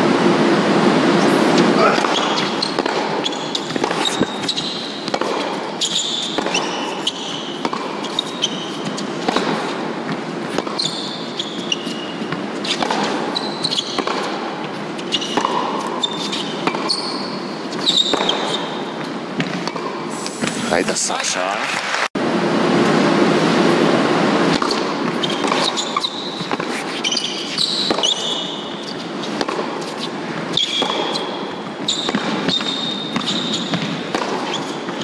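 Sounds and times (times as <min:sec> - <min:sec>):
shoes squeaking on court: 0:01.2 - 0:20.8, 0:24.5 - 0:35.0
racket striking tennis ball: 0:01.5 - 0:20.6, 0:24.4 - 0:35.0
ball bouncing: 0:01.9 - 0:17.2, 0:29.3 - 0:34.6.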